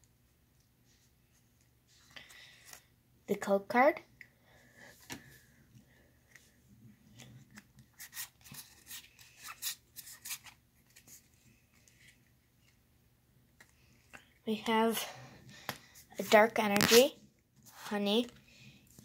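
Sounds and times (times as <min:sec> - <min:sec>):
trading cards sliding and clicking: 0:16.2 - 0:17.1.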